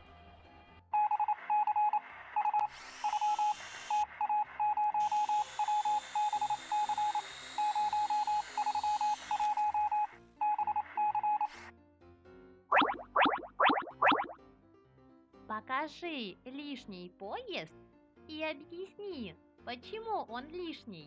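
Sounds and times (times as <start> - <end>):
short electronic beeps: 12.7 - 14.3.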